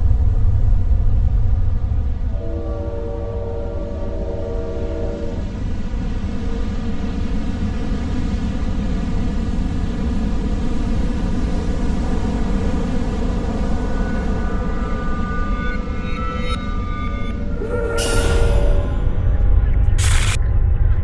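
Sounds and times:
low rumble: 0.0s - 2.5s, 11.7s - 21.0s
many-toned drone: 9.0s - 21.0s.

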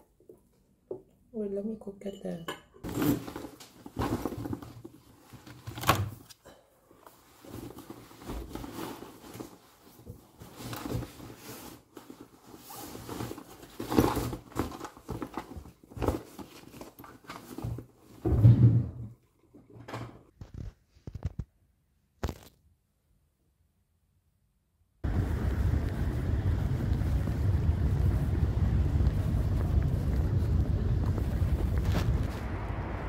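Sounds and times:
rustling and knocking in backpack: 2.8s - 6.2s, 7.1s - 18.9s.

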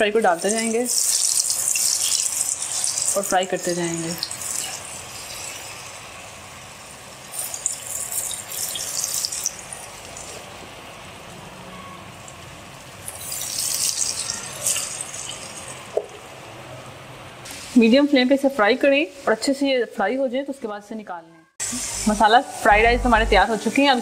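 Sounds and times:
fries sizzling in hot oil: 0.0s - 10.9s, 12.2s - 16.3s, 21.6s - 22.8s.

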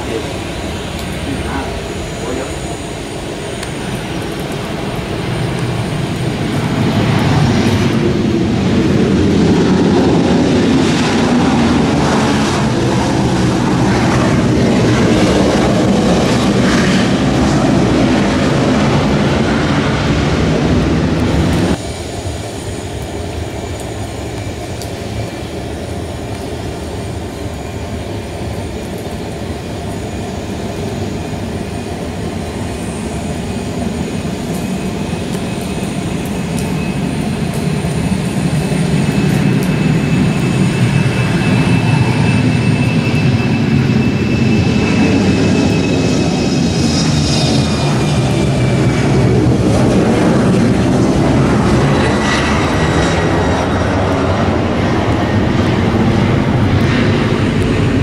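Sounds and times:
jet airliner roar: 0.0s - 58.0s
steady jet rumble: 0.0s - 58.0s.

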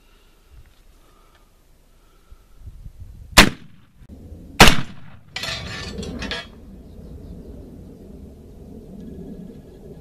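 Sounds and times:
rifle shots: 3.4s - 3.8s, 4.6s - 5.2s.

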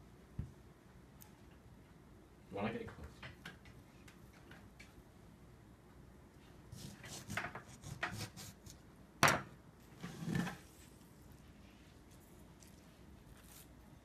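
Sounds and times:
lemon squeezed squelchy rustle: 10.8s - 14.0s.

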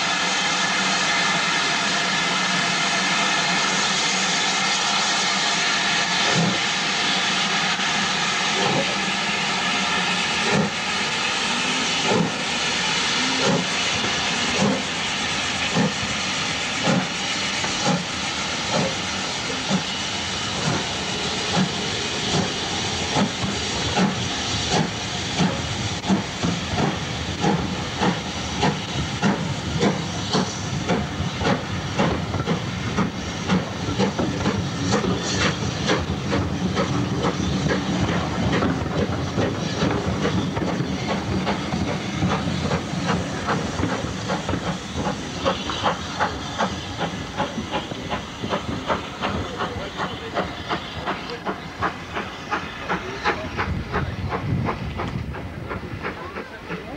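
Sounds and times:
steam hissing: 0.0s - 56.9s
steam locomotive exhaust beats: 0.0s - 56.9s.

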